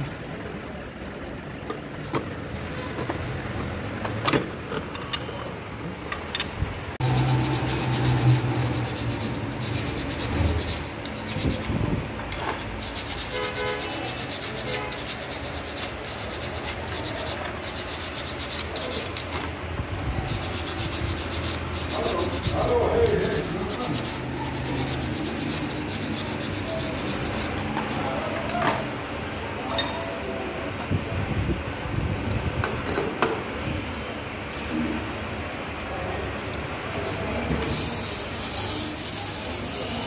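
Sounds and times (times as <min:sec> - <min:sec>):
abrasive paper rubbing: 0:07.0 - 0:11.9, 0:12.7 - 0:19.2, 0:20.2 - 0:28.2, 0:37.7 - 0:40.0.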